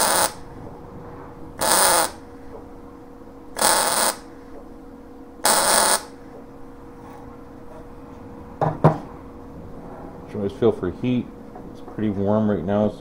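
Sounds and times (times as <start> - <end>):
welding arc bursts: 0.0 - 0.4, 1.6 - 2.2, 3.6 - 4.3, 5.4 - 6.2
steady welder hum: 0.0 - 11.6.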